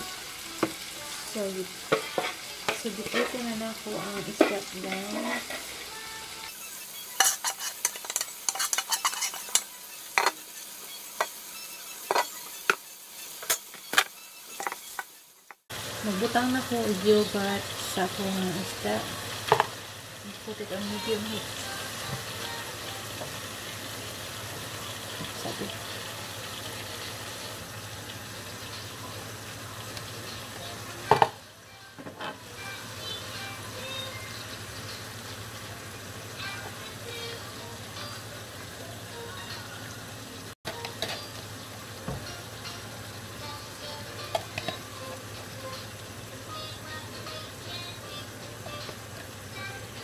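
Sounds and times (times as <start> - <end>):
onions sizzling in a pan: 0.0 - 50.0
spoon scraping plastic bowl: 7.2 - 9.6.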